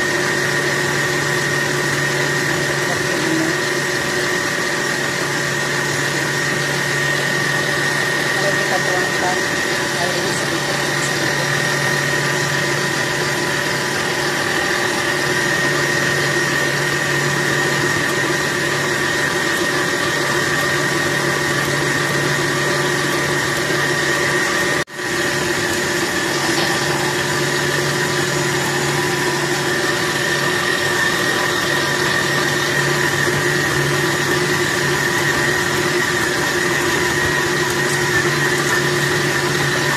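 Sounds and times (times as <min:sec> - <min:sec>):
stand mixer motor humming: 0:00.0 - 0:39.9.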